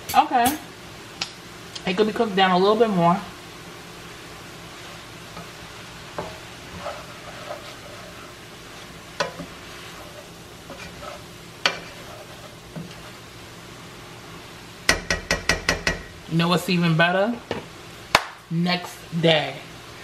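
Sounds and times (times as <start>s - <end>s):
food sizzling in a skillet: 0.0s - 20.0s
spoon scraping and knocking pan: 5.3s - 13.2s, 14.9s - 16.2s.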